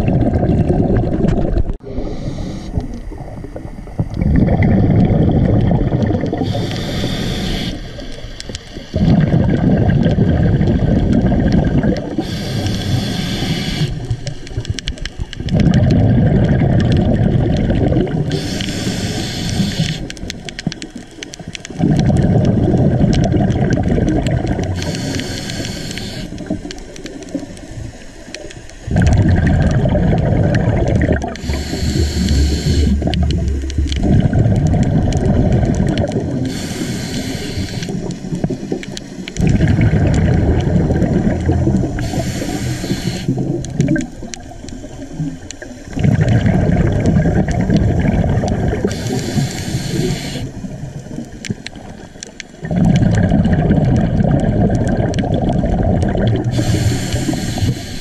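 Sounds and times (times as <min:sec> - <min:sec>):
exhaled air bubbling: 0:00.0 - 0:58.0
regulator inhale hiss: 0:01.8 - 0:03.1, 0:06.3 - 0:08.9, 0:12.1 - 0:14.6, 0:18.2 - 0:20.2, 0:24.7 - 0:26.9, 0:31.4 - 0:33.2, 0:36.4 - 0:39.4, 0:41.8 - 0:43.6, 0:48.8 - 0:50.8, 0:56.5 - 0:58.0.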